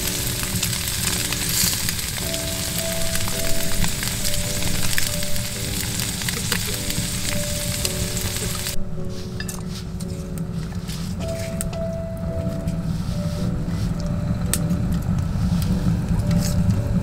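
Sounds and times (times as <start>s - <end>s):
tofu sizzling on a griddle: 0.0s - 8.8s
soft melody: 0.0s - 17.0s.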